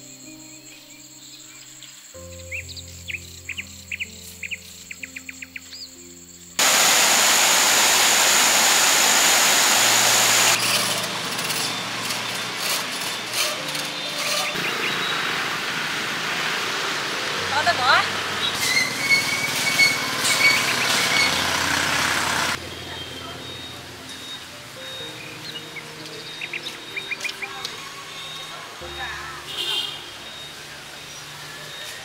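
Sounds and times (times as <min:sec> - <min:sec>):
soft background music: 0:00.0 - 0:06.6, 0:10.6 - 0:15.6, 0:16.6 - 0:18.6, 0:22.6 - 0:32.0
birds chirping: 0:00.0 - 0:32.0
loud steady rushing noise: 0:06.6 - 0:22.6.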